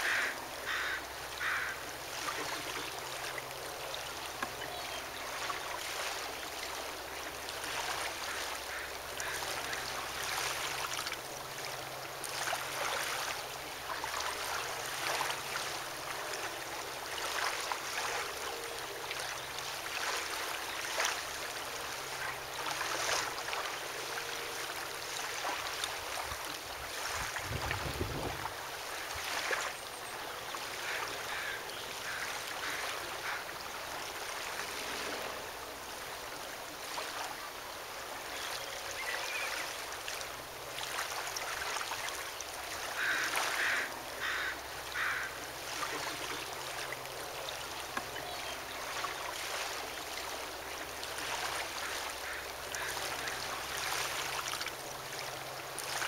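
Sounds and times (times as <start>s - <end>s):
wind noise: 27.1s - 28.6s.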